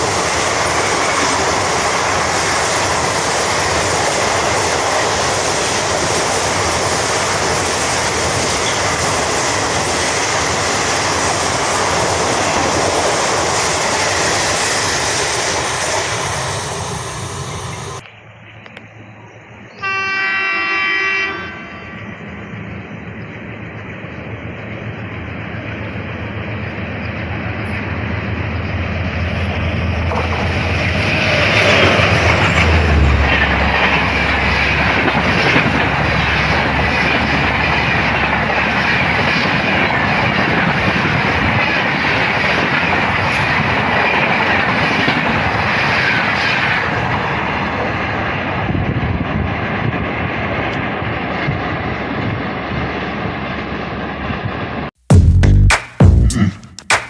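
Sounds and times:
train coaches rumbling and clattering: 0:00.0 - 0:54.9
diesel locomotive engine drone: 0:00.0 - 0:57.0
loud electronic music: 0:55.1 - 0:57.0.

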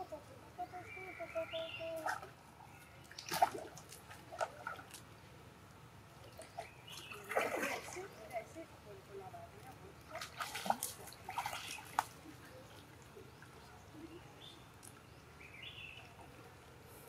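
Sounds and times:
water splashing and dripping: 0:03.0 - 0:08.4, 0:09.6 - 0:13.7, 0:14.7 - 0:15.0.

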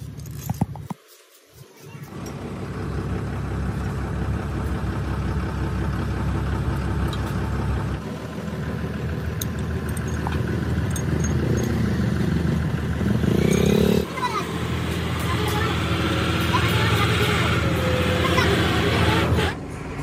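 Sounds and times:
large engine running: 0:01.9 - 0:20.0.

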